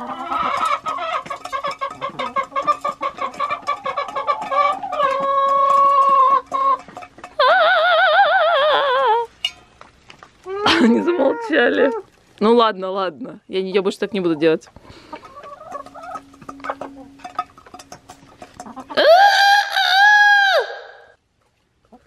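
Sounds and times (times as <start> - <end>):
hens clucking and cackling: 0.0 - 9.4, 10.3 - 12.2, 13.8 - 21.1
hen warbling call: 18.6 - 21.2
hen drawn-out call: 18.8 - 21.1.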